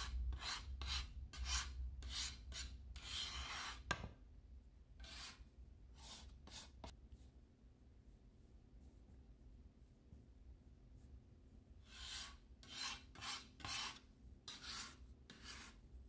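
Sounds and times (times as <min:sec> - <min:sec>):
metal scraper scraping countertop: 0:00.0 - 0:04.1, 0:11.9 - 0:15.8.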